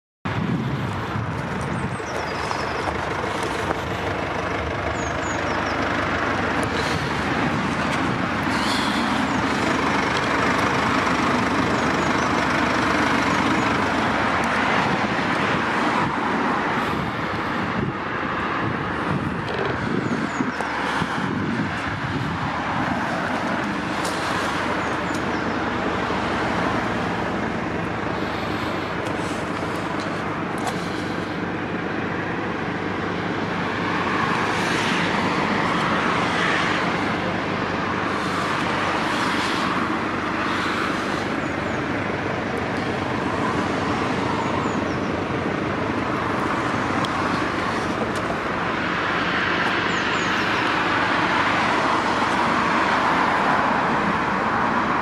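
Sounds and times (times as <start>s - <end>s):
road traffic passing: 0.3s - 55.0s.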